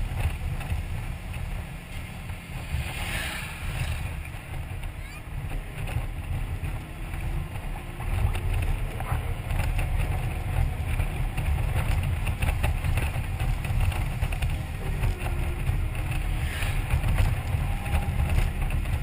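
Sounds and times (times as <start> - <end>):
motorcycle running: 0.0 - 19.0
wind rushing over microphone: 0.0 - 19.0.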